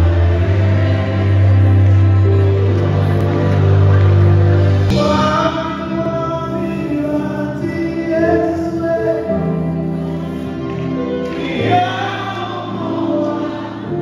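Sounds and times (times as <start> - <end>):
backing singers: 0.0 - 14.0
keyboard accompaniment: 0.0 - 14.0
man singing into microphone: 4.9 - 10.0, 11.2 - 14.0.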